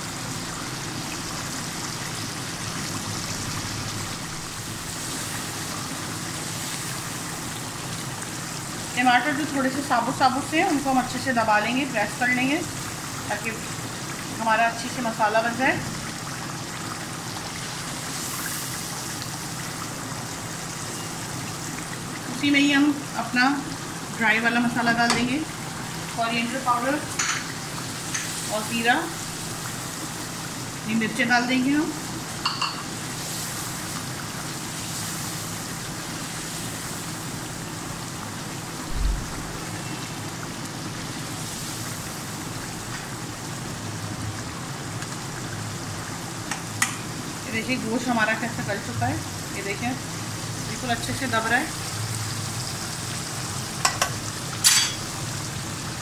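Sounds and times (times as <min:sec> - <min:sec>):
food sizzling in a frying pan: 0:00.0 - 0:56.0
low thump: 0:38.9 - 0:39.5.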